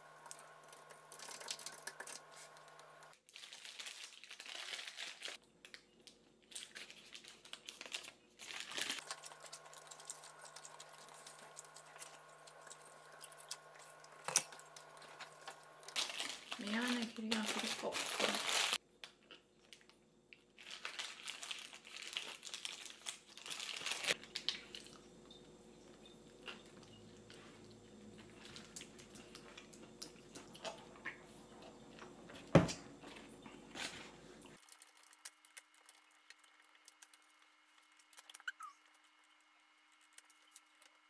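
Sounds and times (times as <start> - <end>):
paper wrapper crinkling: 0.0 - 18.8, 20.5 - 25.0, 33.1 - 41.0
chewing: 9.0 - 16.0, 25.9 - 32.1.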